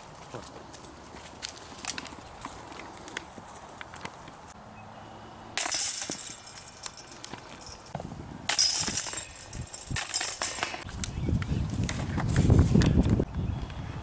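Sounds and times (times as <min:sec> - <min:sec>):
disc golf basket chains jangling: 0:05.6 - 0:10.9.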